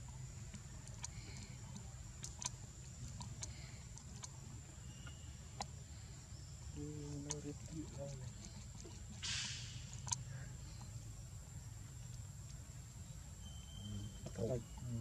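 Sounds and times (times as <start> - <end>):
sharp ticks: 0.0 - 4.4, 6.8 - 11.0.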